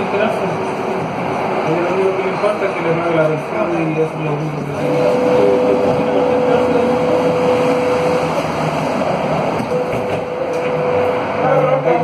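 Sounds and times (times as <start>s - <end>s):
train onboard equipment running: 0.0s - 12.0s
sustained tone: 4.8s - 12.0s.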